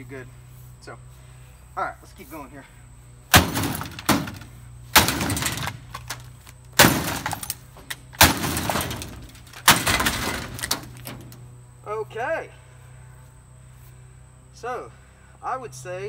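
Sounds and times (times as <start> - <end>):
plastic breaking and clattering: 3.3 - 11.4.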